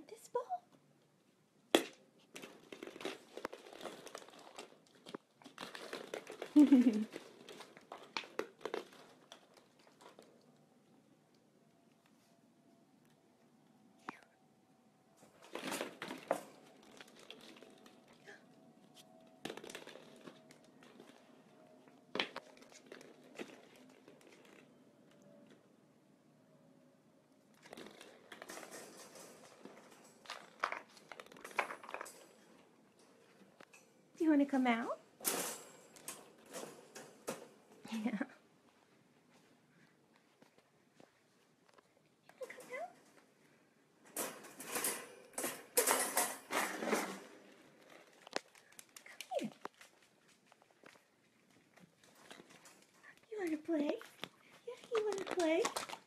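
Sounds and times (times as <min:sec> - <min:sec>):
plastic balls clicking and knocking: 0:01.7 - 0:10.6, 0:15.4 - 0:18.4, 0:19.0 - 0:21.4, 0:27.5 - 0:32.7, 0:47.3 - 0:51.0, 0:51.6 - 0:56.0.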